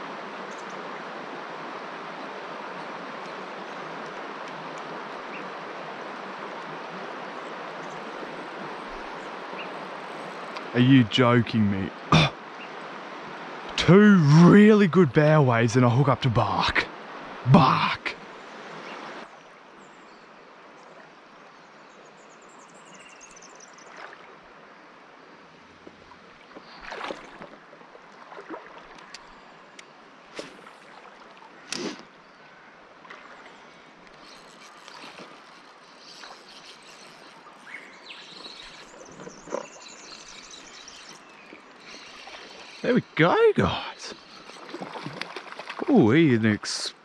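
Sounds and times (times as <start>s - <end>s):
river water lapping: 0.0s - 19.4s, 23.4s - 47.0s
sharp splashes and knocks: 26.8s - 27.6s, 44.6s - 45.9s.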